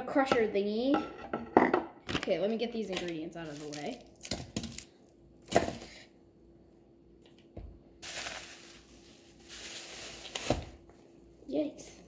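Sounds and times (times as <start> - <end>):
plastic bag rustling: 8.0 - 10.8.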